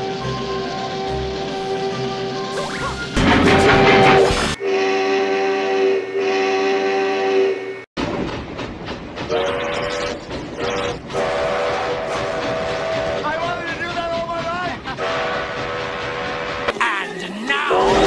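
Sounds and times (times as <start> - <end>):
steam train running: 0.0 - 18.0
steam whistle blasts: 4.1 - 7.8, 10.6 - 13.2, 15.0 - 16.7.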